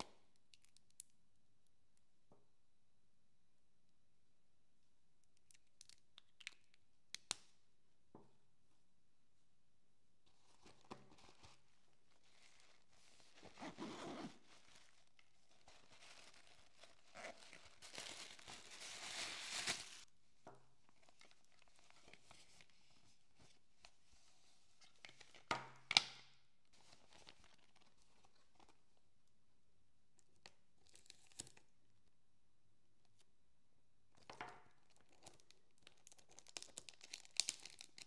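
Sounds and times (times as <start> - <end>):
tissue paper rustling: 10.3 - 20.1.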